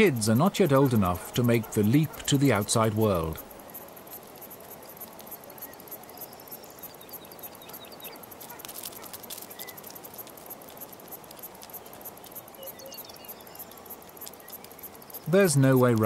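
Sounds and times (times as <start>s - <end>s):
light clicks and ticks: 0.0s - 16.0s.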